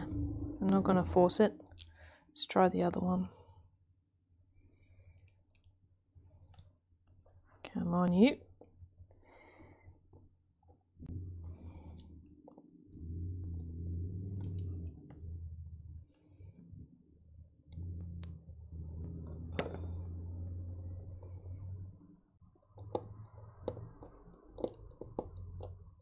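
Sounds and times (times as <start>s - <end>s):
low hum: 0.0s - 2.2s, 10.8s - 26.0s.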